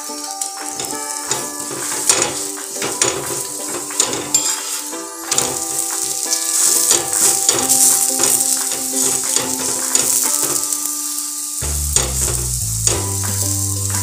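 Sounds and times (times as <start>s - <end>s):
background music: 0.0s - 14.0s
flatbread sizzling on griddle: 0.0s - 14.0s
deep bass: 11.6s - 14.0s.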